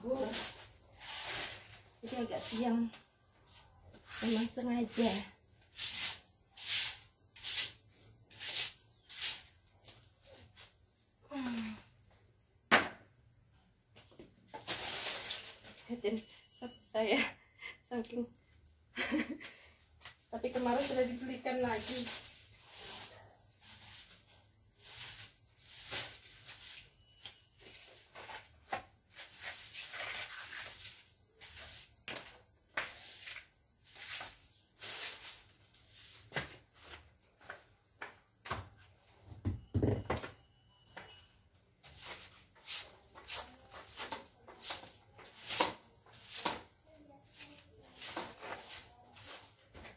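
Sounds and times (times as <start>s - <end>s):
broom sweeping a hard floor: 0.0s - 10.9s, 14.5s - 16.3s, 20.0s - 37.7s, 41.8s - 49.9s.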